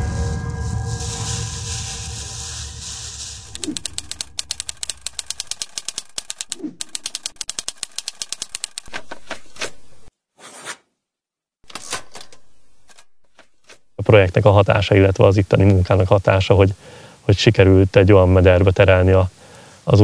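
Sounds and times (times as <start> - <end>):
typewriter keys clacking: 3.5 - 9.8.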